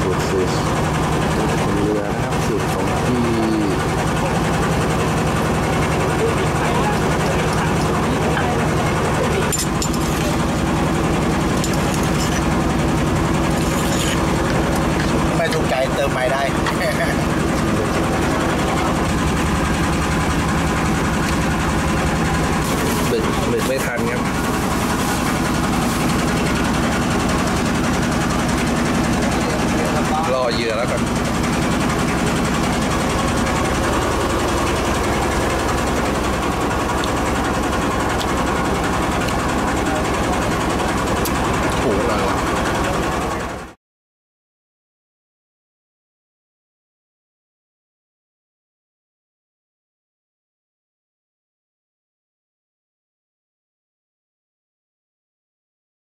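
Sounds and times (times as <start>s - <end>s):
boat engine throbbing: 0.0s - 43.8s
stone mortar and pestle scraping: 9.5s - 10.4s, 11.5s - 12.6s, 13.5s - 15.1s.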